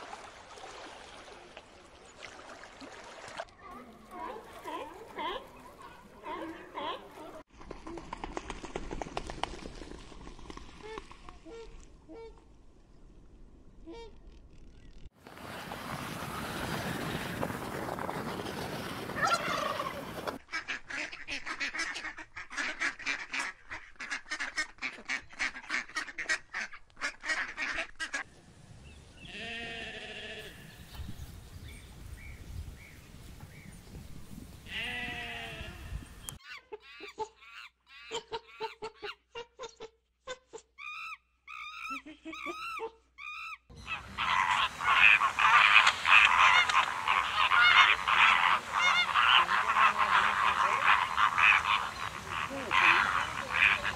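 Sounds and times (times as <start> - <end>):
swans calling: 4.0 - 7.5, 19.0 - 20.4, 36.3 - 53.9
honk-like calls: 43.8 - 53.9
mallard duck calling: 43.8 - 53.9.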